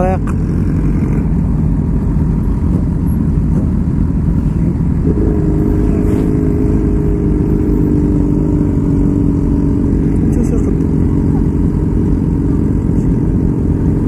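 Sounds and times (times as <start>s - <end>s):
motorcycles idling: 0.0s - 14.0s
heavy truck passing: 4.3s - 11.5s.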